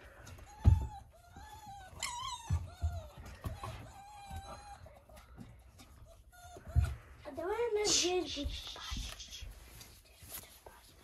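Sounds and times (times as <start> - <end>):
puppy whimpering: 0.1 - 7.1.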